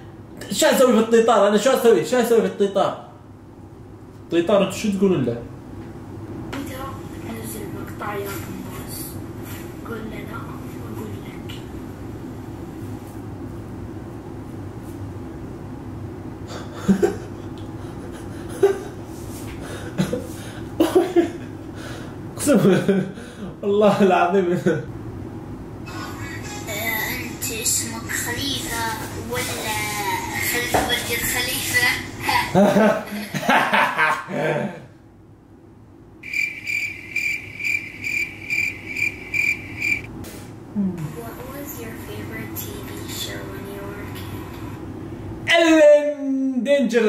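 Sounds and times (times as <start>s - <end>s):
steady low hum: 0.0s - 47.0s
man laughing: 16.5s - 19.0s, 19.6s - 21.8s, 22.5s - 23.2s, 32.5s - 34.9s
cricket chirping: 36.2s - 40.1s.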